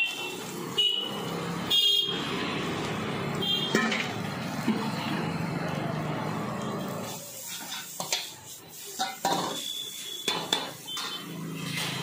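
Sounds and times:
metal utensils clanking on wok: 3.6 - 5.0, 7.0 - 12.0.

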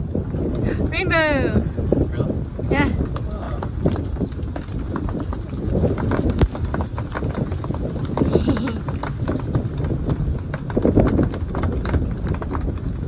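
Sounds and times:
wind gusting across microphone: 0.0 - 13.0.

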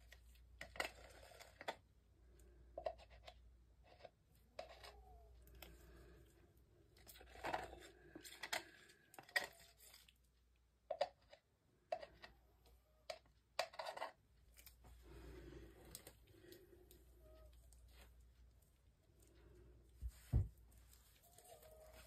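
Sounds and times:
stick scraping plastic cup: 0.0 - 1.8, 2.8 - 5.0, 13.1 - 14.2.

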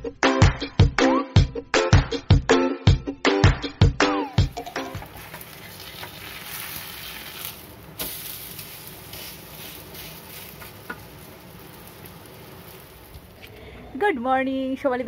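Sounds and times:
pancake sizzling on griddle: 4.5 - 13.6.

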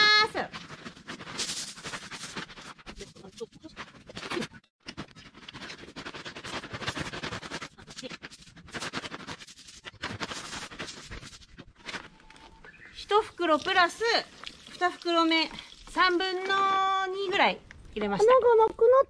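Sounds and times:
crushed stone pouring: 13.2 - 16.8.

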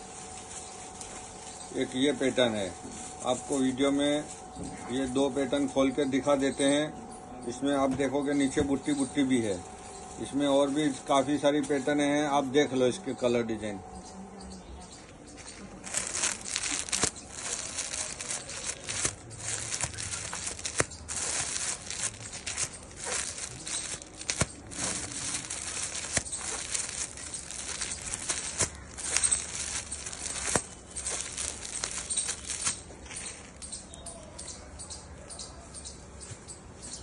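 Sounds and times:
plastic bags crinkling: 0.0 - 6.9, 7.6 - 13.2, 15.8 - 33.9.

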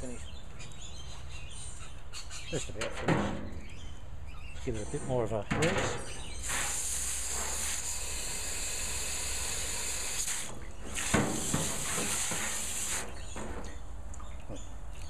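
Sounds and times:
hose spray hissing: 6.3 - 13.3.

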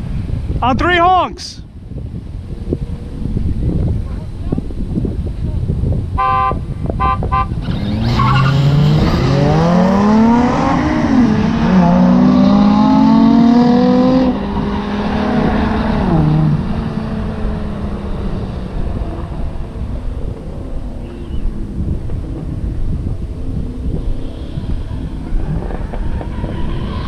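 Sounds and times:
vehicle engine accelerating hard: 7.2 - 27.0.

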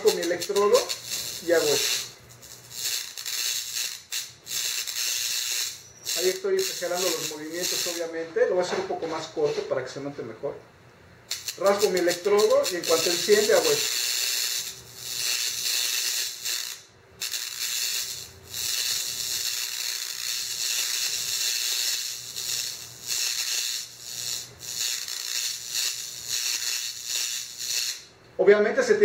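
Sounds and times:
high-voltage spark hissing: 0.0 - 8.3, 11.2 - 28.1.

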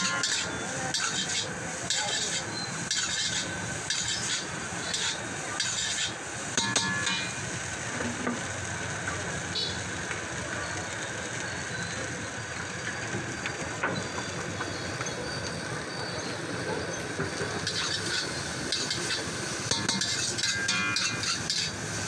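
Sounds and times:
metal spatula scraping wok: 0.0 - 7.4, 17.6 - 22.0
noodles sizzling in a wok: 0.0 - 22.0.

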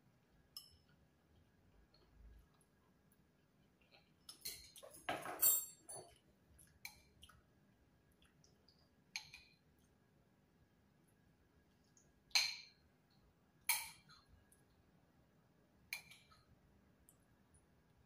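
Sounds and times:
cutlery clinking against bowl: 0.5 - 0.9, 4.0 - 6.2, 13.7 - 14.3.

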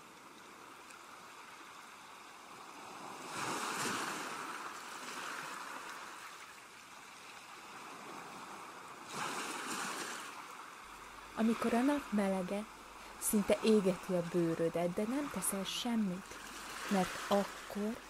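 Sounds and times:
sea waves hissing surf: 8.2 - 18.0.

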